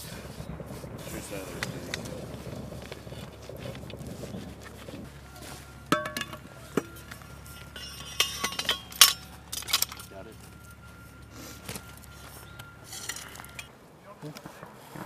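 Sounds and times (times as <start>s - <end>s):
metal parts clinking: 5.9s - 10.3s, 12.8s - 13.7s.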